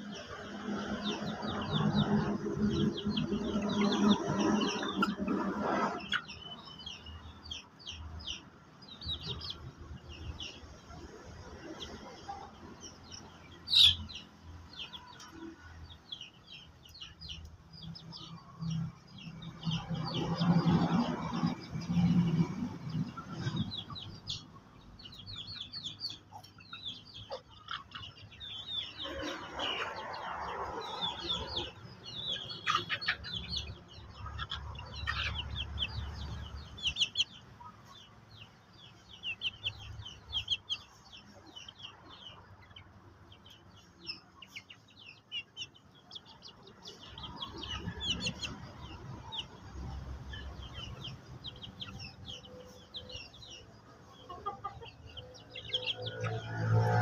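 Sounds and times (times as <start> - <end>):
chickens clucking: 0.0 - 57.0.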